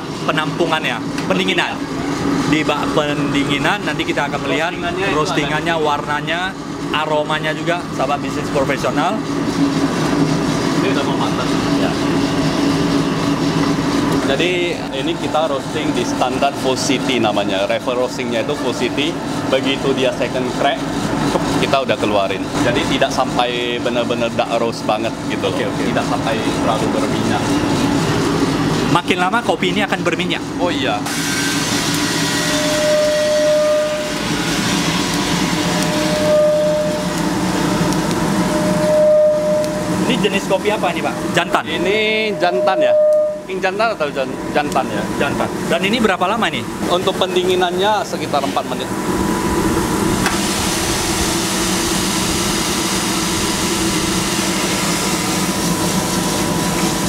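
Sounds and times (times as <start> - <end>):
coffee roaster blower noise: 0.0 - 57.0
short steady tone: 32.3 - 40.2, 41.2 - 43.5.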